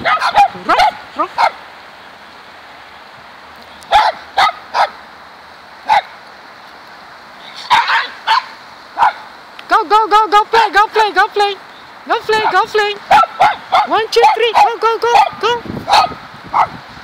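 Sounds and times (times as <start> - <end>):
small dogs yapping: 0.0 - 1.6, 3.9 - 5.0, 5.8 - 6.2, 7.6 - 9.3, 12.4 - 16.8.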